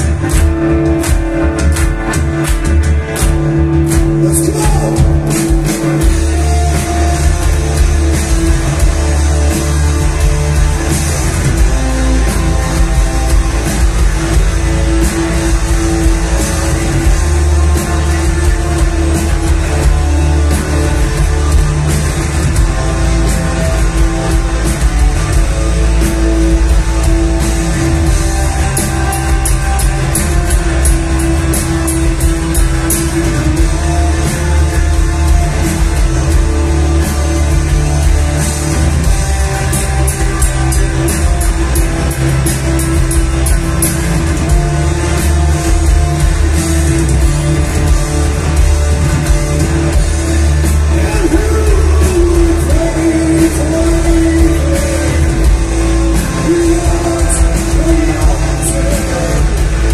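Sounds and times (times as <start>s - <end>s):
heavy metal band playing: 0.0s - 59.9s
person singing: 50.8s - 59.9s.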